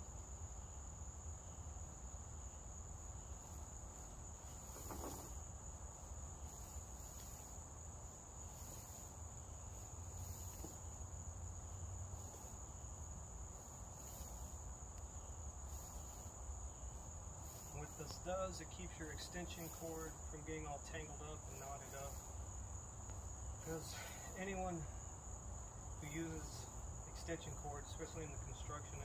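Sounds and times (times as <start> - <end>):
high-pitched insect drone: 0.0 - 29.0.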